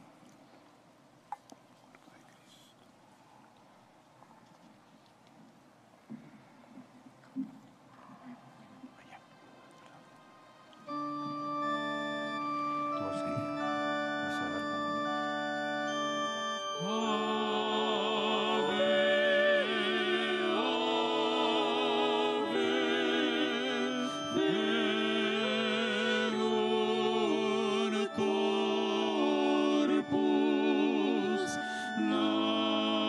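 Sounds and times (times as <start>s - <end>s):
organ chords: 10.8s - 33.0s
person singing a hymn: 10.9s - 33.0s.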